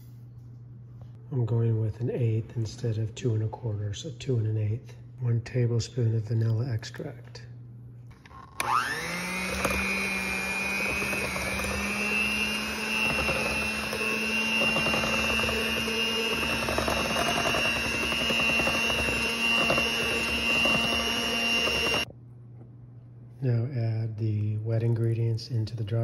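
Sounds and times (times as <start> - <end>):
electric hand mixer whisking: 8.1 - 22.1.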